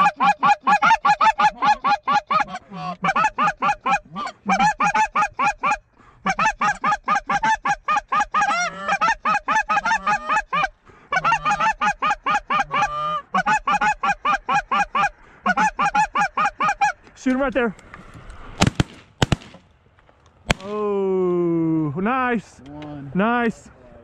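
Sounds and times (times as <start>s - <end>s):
gliding goose call notes: 0.0s - 17.0s
goose calls honking: 0.0s - 17.0s.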